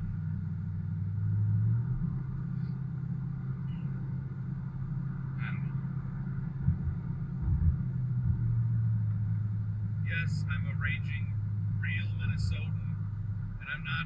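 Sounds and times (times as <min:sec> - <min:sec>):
truck engine and tyres drone: 0:00.0 - 0:14.0
low thumps: 0:06.2 - 0:09.6.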